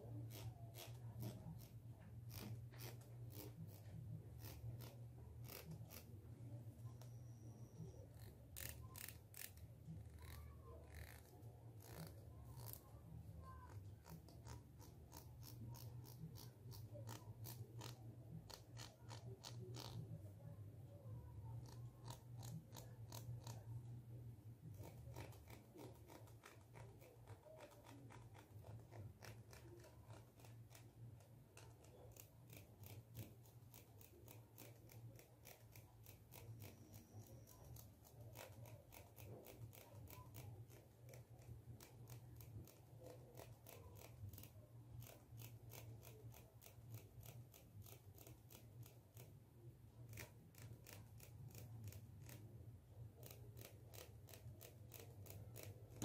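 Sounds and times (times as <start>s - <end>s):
faint low hum: 0.0s - 56.0s
comb teeth ticking: 21.4s - 23.9s, 24.7s - 49.4s, 53.1s - 56.0s.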